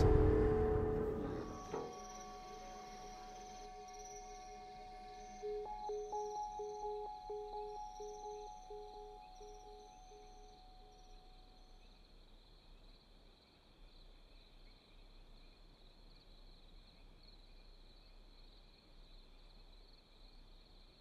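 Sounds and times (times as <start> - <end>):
held music notes: 0.0 - 11.4
insects chirring: 0.0 - 21.0.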